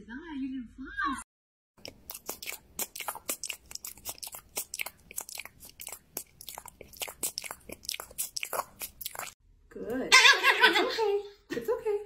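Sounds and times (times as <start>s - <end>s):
dog licking wetly: 1.8s - 9.4s.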